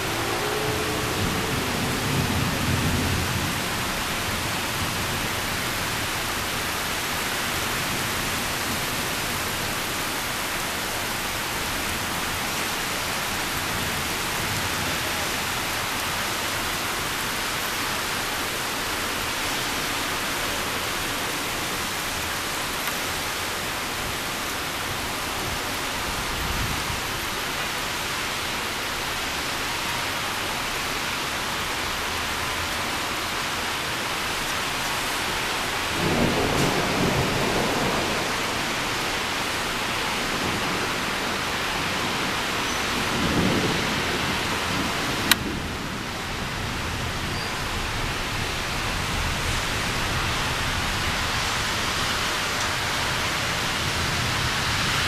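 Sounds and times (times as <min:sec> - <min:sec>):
low thunder rumble: 0:00.0 - 0:05.4
heavy rain pouring: 0:00.0 - 0:55.0.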